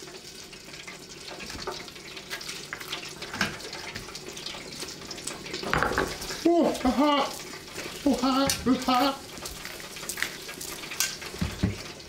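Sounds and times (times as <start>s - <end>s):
chicken deep-frying in hot oil: 0.0s - 12.0s.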